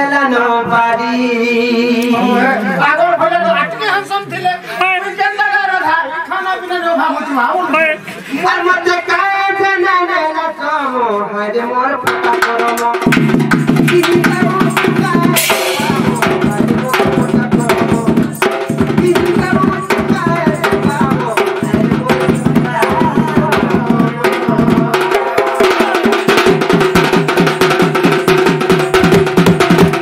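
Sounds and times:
person singing through microphone: 0:00.0 - 0:03.0, 0:05.0 - 0:26.5
barrel drum beaten fast: 0:12.1 - 0:30.0.

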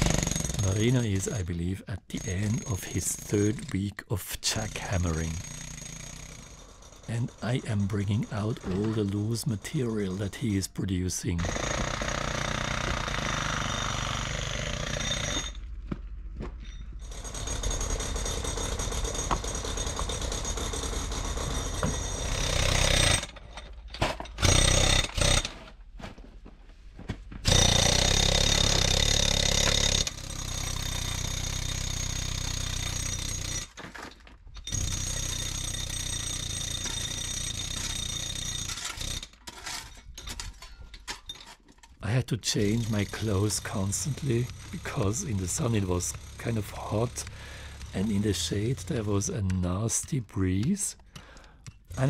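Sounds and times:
jackhammer breaking rock: 0:00.0 - 0:01.2, 0:04.6 - 0:09.4, 0:11.4 - 0:15.6, 0:17.0 - 0:25.7, 0:27.4 - 0:40.6, 0:42.1 - 0:49.3, 0:50.5 - 0:52.0.

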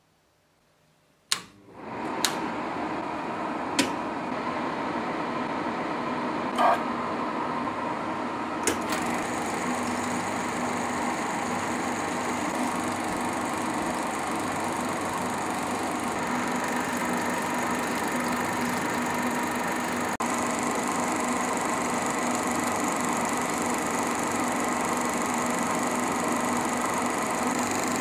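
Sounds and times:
switch clicks: 0:01.3 - 0:01.6, 0:03.8 - 0:04.0
film projector motor whirring: 0:08.7 - 0:28.0.

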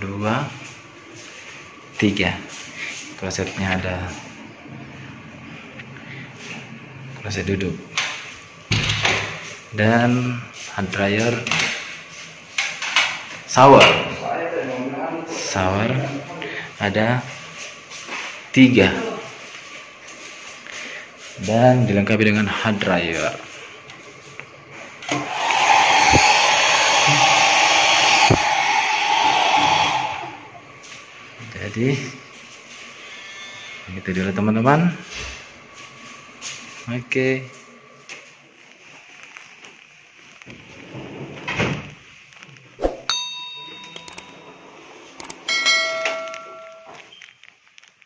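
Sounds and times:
hair dryer blowing: 0:25.1 - 0:30.5
electronic door chime: 0:43.1 - 0:47.1.

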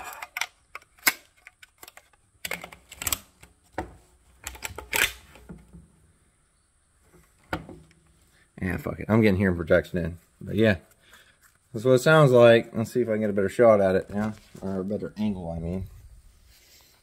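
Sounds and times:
rifle loading clicks and clacks: 0:00.0 - 0:03.6, 0:04.4 - 0:05.6.

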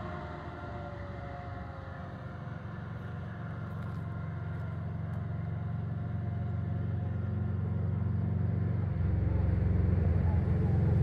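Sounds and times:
faint siren winding down: 0:00.0 - 0:05.3, 0:08.9 - 0:11.0
fire truck engine rumble: 0:00.0 - 0:11.0.

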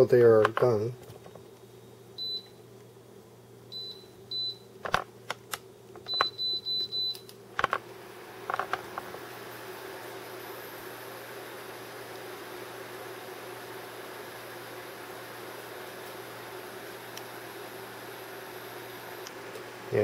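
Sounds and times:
fan-like hiss: 0:00.0 - 0:06.0, 0:07.3 - 0:20.0
cooktop beeps: 0:02.2 - 0:02.6, 0:03.7 - 0:04.7, 0:06.1 - 0:07.3.

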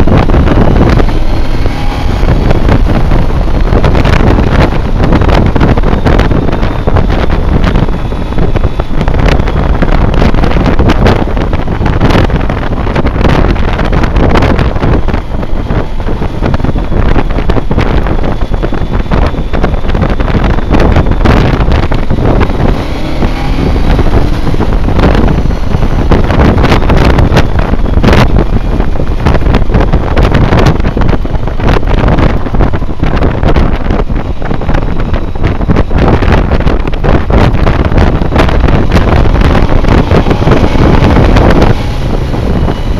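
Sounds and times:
motorcycle engine running: 0:00.0 - 0:42.9
wind buffeting microphone: 0:00.0 - 0:42.9.

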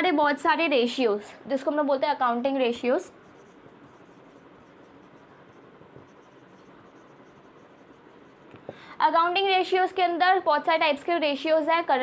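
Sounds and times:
marker writing on whiteboard: 0:03.1 - 0:08.6.

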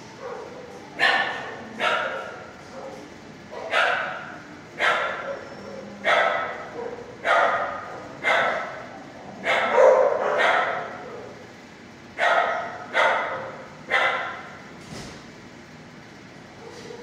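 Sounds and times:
dog barking with echo: 0:00.2 - 0:05.4, 0:06.0 - 0:11.3, 0:12.2 - 0:14.6.

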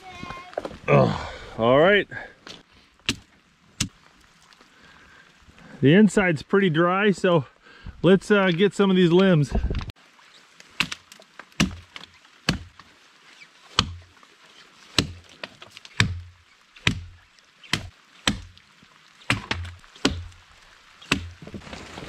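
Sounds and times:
wooden limbs being chopped: 0:03.0 - 0:04.0, 0:10.7 - 0:12.9, 0:13.7 - 0:14.1, 0:14.8 - 0:22.0.

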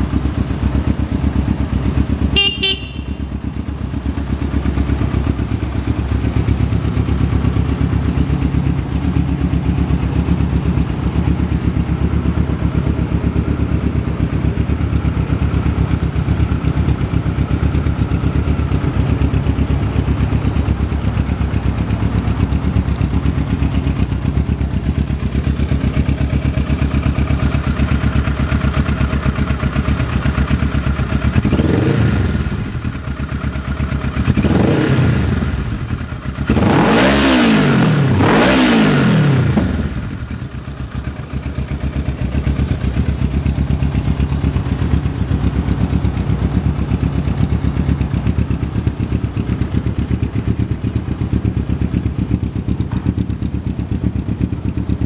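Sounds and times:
motorcycle engine idling and revving: 0:00.0 - 0:55.0.

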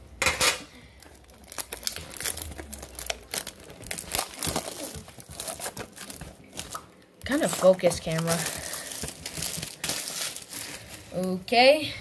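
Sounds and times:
plastic wrap crinkling and tearing: 0:00.7 - 0:11.5.

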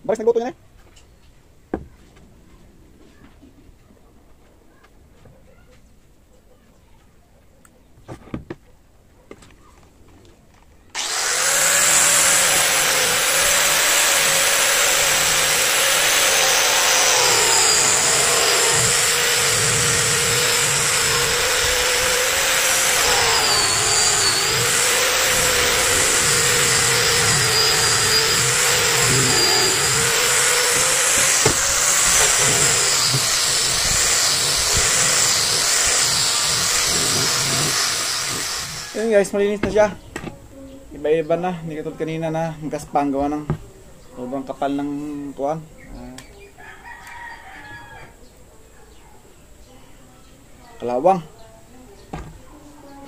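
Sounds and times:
electric sander whining on metal: 0:11.0 - 0:39.1.

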